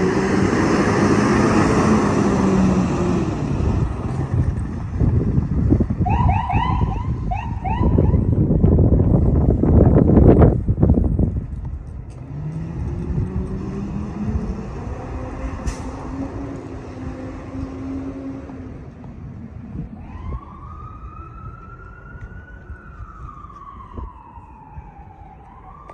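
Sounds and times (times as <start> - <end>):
ambulance engine accelerating: 0.0 - 25.9
siren wail: 6.0 - 8.4, 19.6 - 25.9.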